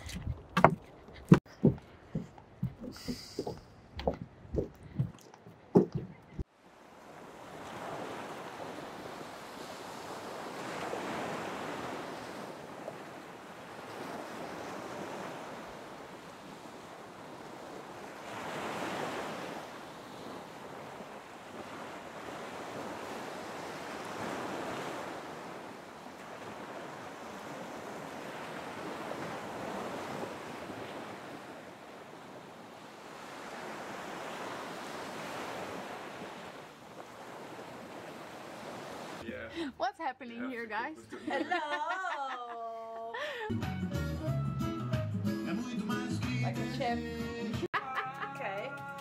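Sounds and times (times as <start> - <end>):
ocean surf breaking: 5.8 - 39.7.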